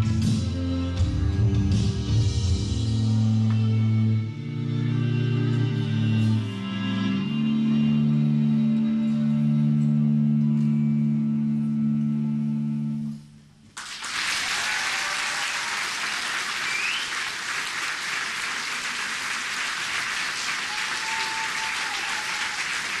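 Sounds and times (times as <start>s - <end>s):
audience applauding: 13.8s - 23.0s.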